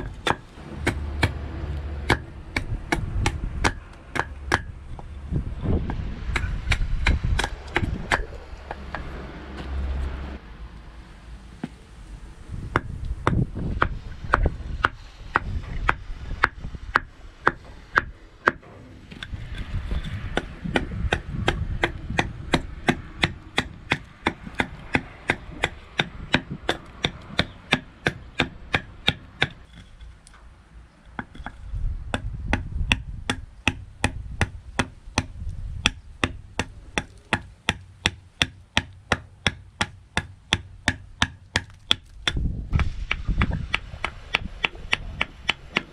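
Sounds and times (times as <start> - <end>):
knife chopping wood: 2.0 - 4.7, 5.9 - 9.7, 31.2 - 45.9.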